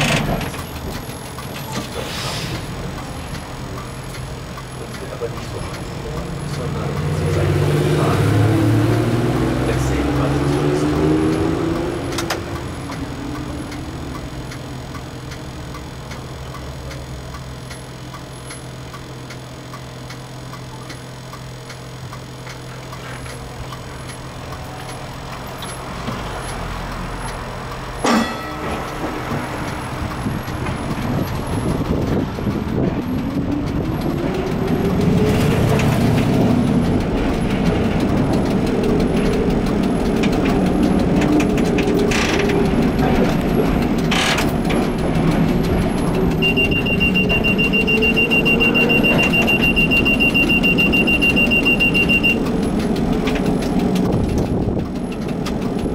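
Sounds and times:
streetcar humming: 0.0s - 55.9s
traction motors whining: 0.0s - 55.9s.

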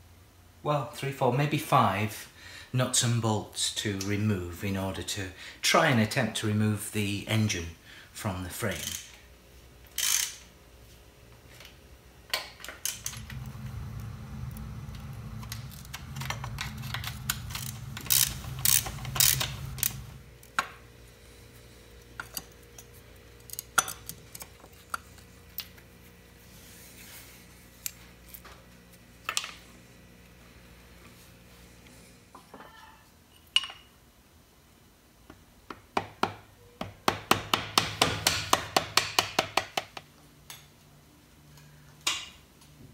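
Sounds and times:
steady low hum: 10.5s - 32.4s.

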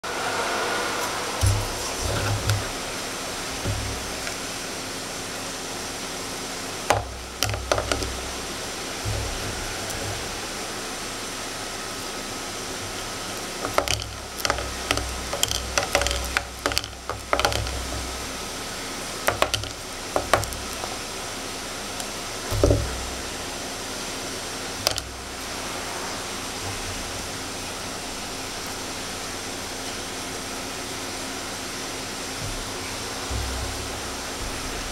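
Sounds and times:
steady hiss: 0.0s - 34.9s
small clicks and knocks: 6.9s - 8.3s, 13.6s - 18.2s, 19.2s - 21.0s, 24.8s - 25.1s.

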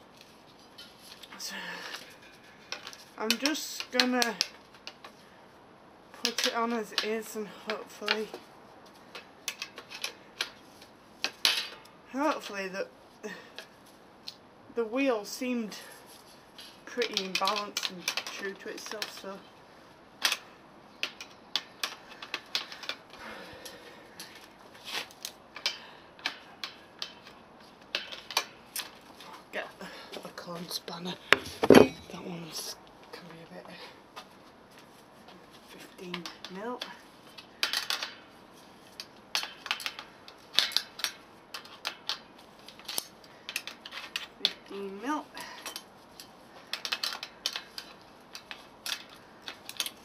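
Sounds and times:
bicycle wheel metallic clicks: 38.9s - 44.6s, 45.5s - 50.0s.

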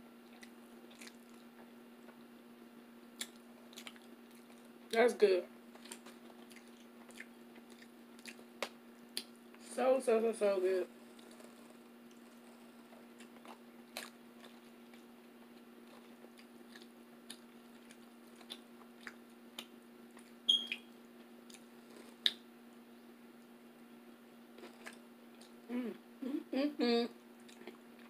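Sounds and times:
steady low hum: 0.0s - 28.0s
person chewing: 0.2s - 1.6s, 3.2s - 4.7s, 5.7s - 9.3s, 11.1s - 15.1s, 15.8s - 20.4s, 24.6s - 25.6s, 27.4s - 28.0s.

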